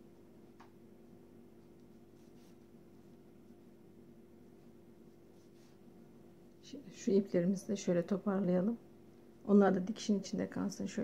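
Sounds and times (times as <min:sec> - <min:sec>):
steady low hum: 0:00.0 - 0:11.0
soft yarn rustles: 0:01.5 - 0:06.7.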